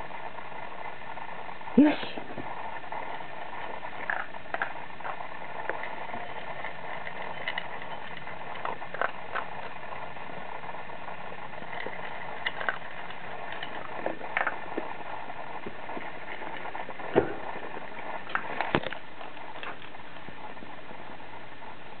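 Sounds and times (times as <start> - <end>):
background noise: 0.0 - 22.0
dog crunching kibble: 2.2 - 21.7
kibble knocking metal bowl: 11.6 - 15.0.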